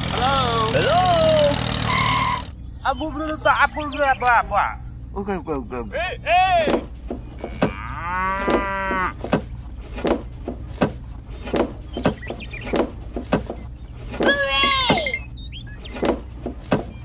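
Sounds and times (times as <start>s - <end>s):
cow mooing: 7.4s - 9.2s.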